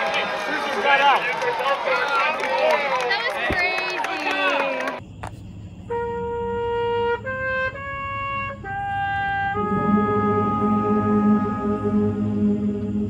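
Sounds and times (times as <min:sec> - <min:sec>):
brass melody: 0:05.9 - 0:13.0
low brass chords: 0:05.9 - 0:13.0.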